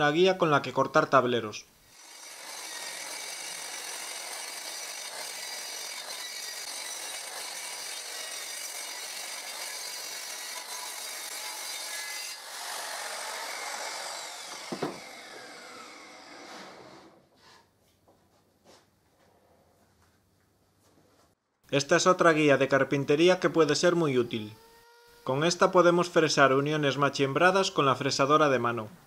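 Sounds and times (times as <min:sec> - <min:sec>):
saw blade winding down: 0:01.9 - 0:17.0
circular saw cutting wood: 0:01.9 - 0:17.2, 0:23.0 - 0:25.6
knock: 0:14.5 - 0:15.0.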